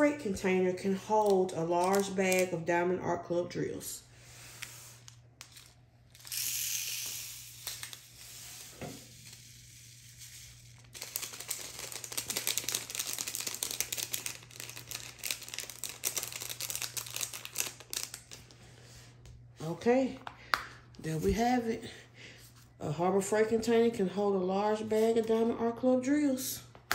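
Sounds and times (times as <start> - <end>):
plastic bag crinkling: 0.9 - 2.7, 7.4 - 8.3, 9.2 - 18.6
tiny beads pouring into plastic box: 6.2 - 16.8.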